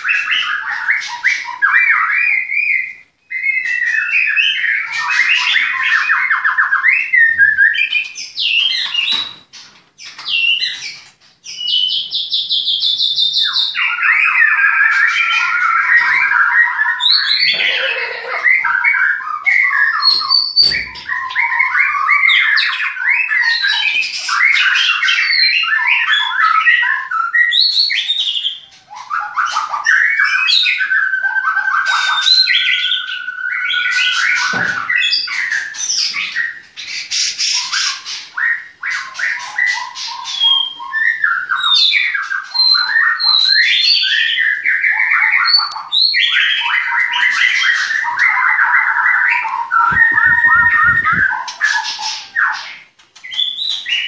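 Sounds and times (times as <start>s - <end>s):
songbirds singing: 0.0s - 54.0s.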